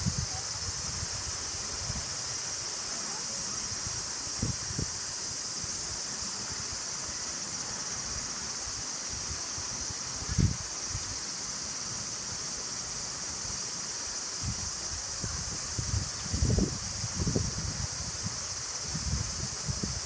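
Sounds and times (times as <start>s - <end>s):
wind gust on microphone: 0.0s - 2.2s, 3.8s - 5.1s, 10.1s - 11.0s, 14.4s - 20.0s.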